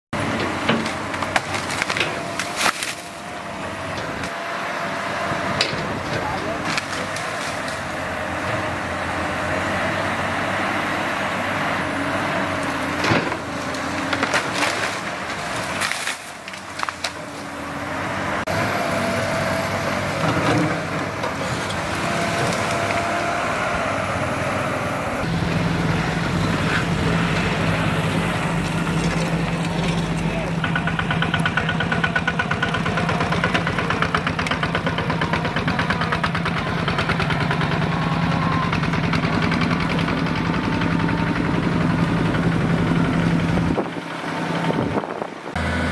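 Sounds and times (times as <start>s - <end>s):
excavator diesel engine under load: 0.2s - 45.9s
wood cracking and splintering: 0.7s - 4.4s, 6.1s - 8.0s, 12.5s - 17.6s, 20.2s - 23.2s
branches crashing down: 0.8s - 3.5s, 6.6s - 8.1s, 12.6s - 17.6s.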